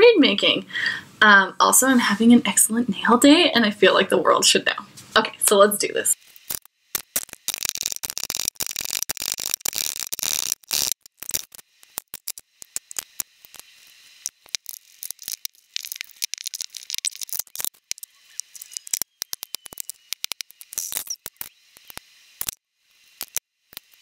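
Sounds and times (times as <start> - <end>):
sharp clicks and ticks: 6.3 - 22.6, 23.2 - 24.0
blade scraping cane: 7.4 - 11.4.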